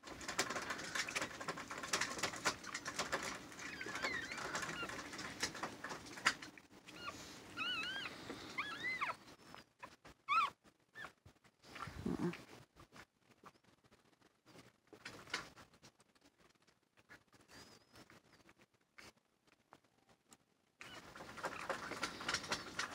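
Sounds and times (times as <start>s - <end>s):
puppies squeaking: 0.3s - 11.2s, 20.8s - 22.9s.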